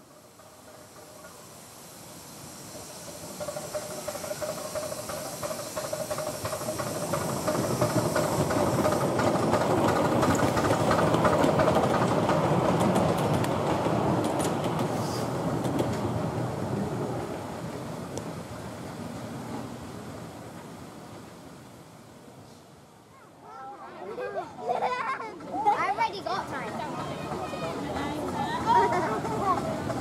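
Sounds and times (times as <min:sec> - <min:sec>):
train wheels clattering on track: 0:00.0 - 0:21.6, 0:24.8 - 0:30.0
hiss of steam: 0:00.0 - 0:23.4.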